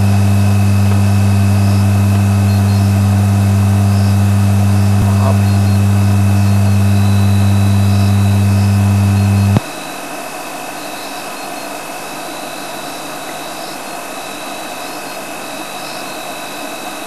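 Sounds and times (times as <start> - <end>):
loud steady low hum: 0.0 - 9.6.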